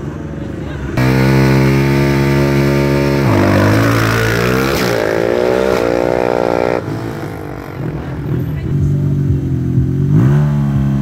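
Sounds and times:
quad engine revving: 0:01.0 - 0:11.0.

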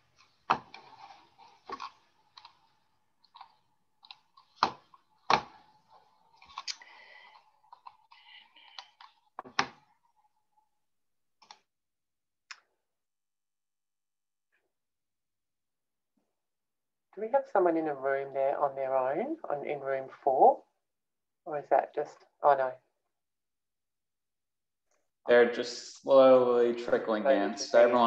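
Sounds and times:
mouse clicks and desk taps: 0:07.7 - 0:09.9.

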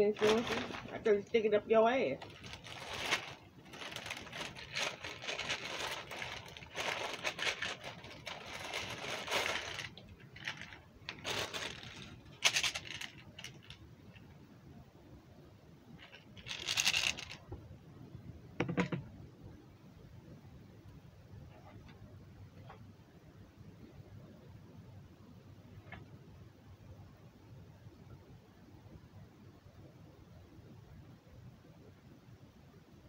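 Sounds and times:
scraping and rustling of handling: 0:00.0 - 0:14.3, 0:16.0 - 0:17.5.

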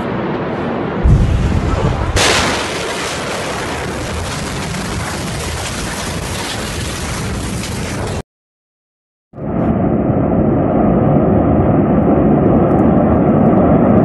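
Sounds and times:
deep explosion boom: 0:01.0 - 0:08.2
sharp blast crack: 0:01.0 - 0:08.2.

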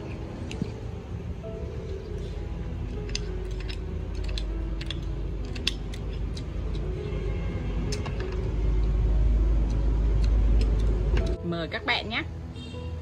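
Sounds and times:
spoon scraping oyster shells: 0:02.9 - 0:06.9.

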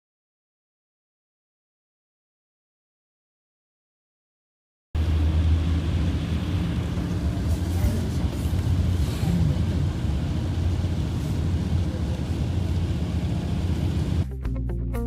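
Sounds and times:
mountain torrent rushing: 0:05.0 - 0:14.2.

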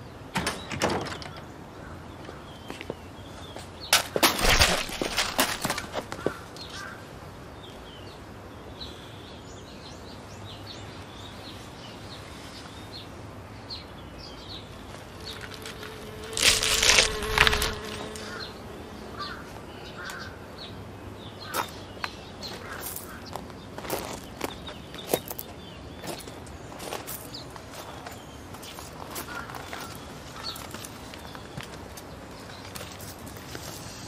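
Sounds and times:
birds chirping: 0:00.0 - 0:34.0
footsteps on gravel: 0:02.7 - 0:06.5, 0:14.9 - 0:18.5, 0:22.5 - 0:33.9.

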